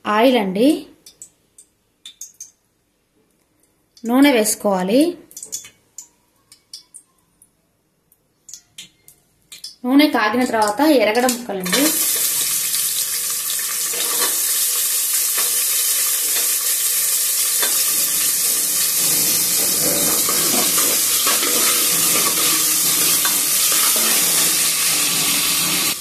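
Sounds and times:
onions sizzling in oil: 11.3 - 26.0.

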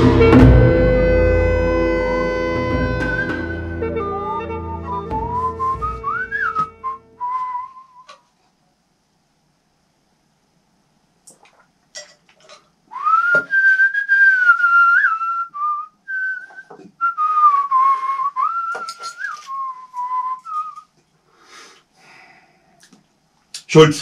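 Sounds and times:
man whistling a tune: 2.7 - 8.2, 12.9 - 20.9.

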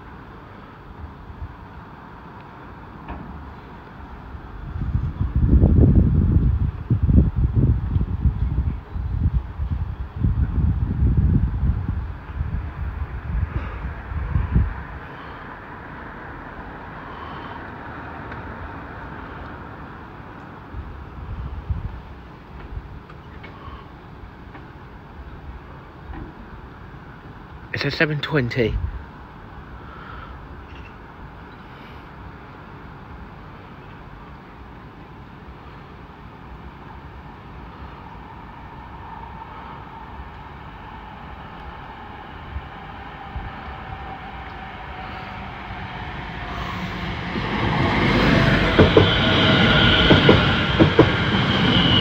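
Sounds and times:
electric train rumbling: 0.0 - 52.0
wind buffeting microphone: 4.3 - 16.3, 20.7 - 23.1, 38.1 - 52.0.

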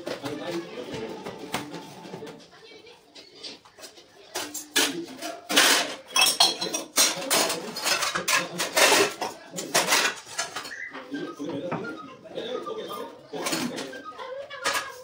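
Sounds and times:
metal dishes and cutlery clattering: 3.2 - 12.0, 12.8 - 15.0.

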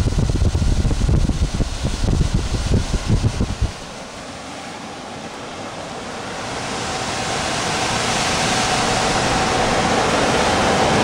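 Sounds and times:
blower fan air rushing: 0.0 - 11.0
faint fan whine: 0.0 - 11.0.

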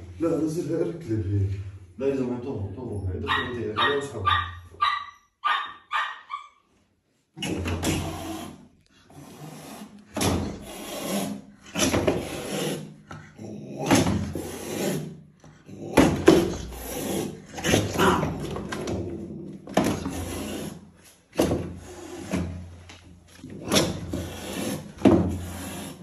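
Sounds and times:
cat hissing: 7.4 - 15.2, 15.8 - 18.4, 19.9 - 20.9, 23.6 - 26.0.

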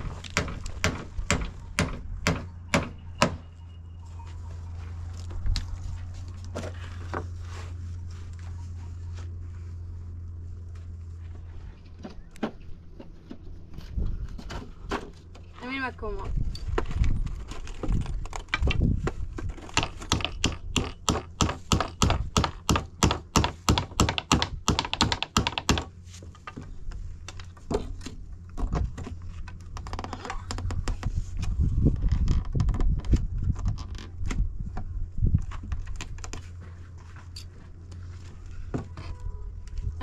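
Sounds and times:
hammer striking nails into wood: 0.3 - 3.4, 19.6 - 25.9.

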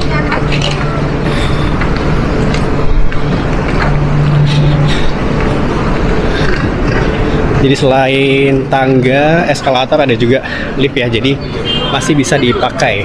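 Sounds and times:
footsteps: 0.0 - 7.6
steady low hum: 0.0 - 11.2
rolling suitcases: 0.0 - 11.8.

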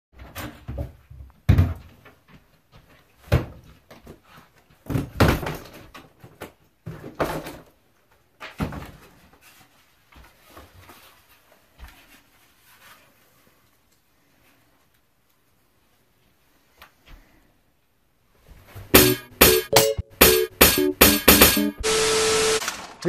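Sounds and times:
knocks and clatters of objects: 0.2 - 7.8.

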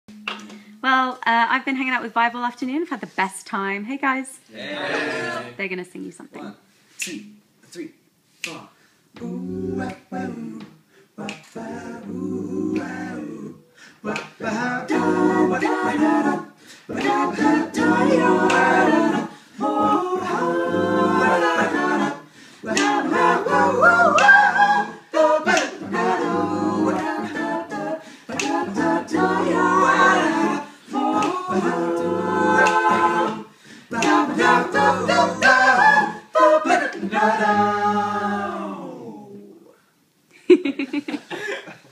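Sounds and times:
a cappella group singing: 4.5 - 5.6, 8.4 - 39.8.

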